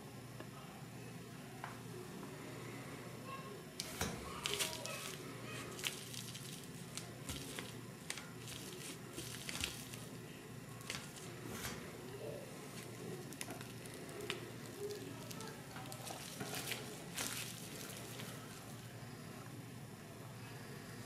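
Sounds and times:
plastic bag crinkling: 0:03.8 - 0:10.2, 0:10.8 - 0:11.4, 0:12.7 - 0:18.9.

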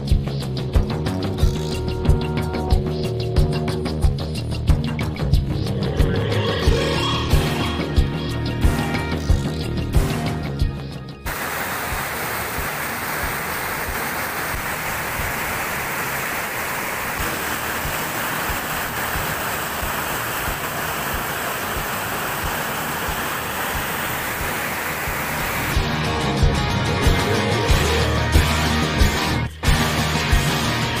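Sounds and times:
music: 0:00.0 - 0:11.4, 0:24.1 - 0:31.0
rapids roaring over boulders: 0:11.3 - 0:25.8.

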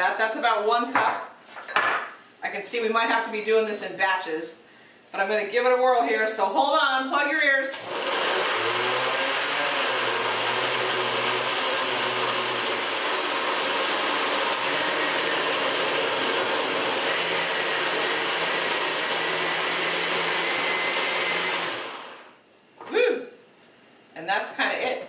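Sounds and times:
blender motor running: 0:07.7 - 0:22.4.

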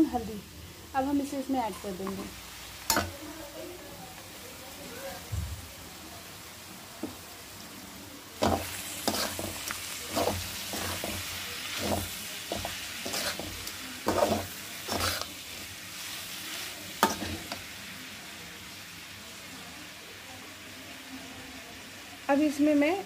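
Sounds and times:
oil sizzling: 0:00.0 - 0:23.0
metal spoon scraping a pan: 0:08.4 - 0:17.7.

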